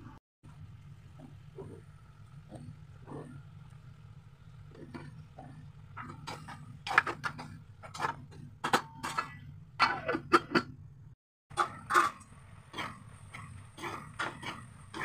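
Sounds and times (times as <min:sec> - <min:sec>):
spatula scraping pan: 0:04.8 - 0:10.6, 0:11.5 - 0:15.0.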